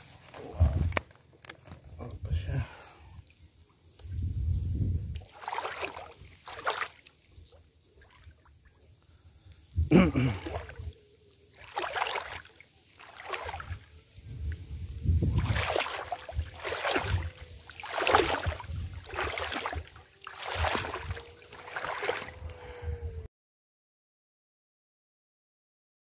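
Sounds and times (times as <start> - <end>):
footsteps wading through water and mud: 5.0 - 8.8, 10.2 - 10.9, 11.5 - 14.1, 15.0 - 22.7.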